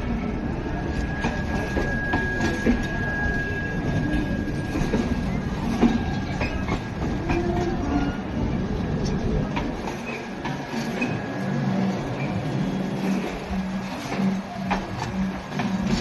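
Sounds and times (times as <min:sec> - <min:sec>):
train wheels rumbling on rails: 0:00.0 - 0:16.0
high wheel squeal: 0:00.7 - 0:07.0.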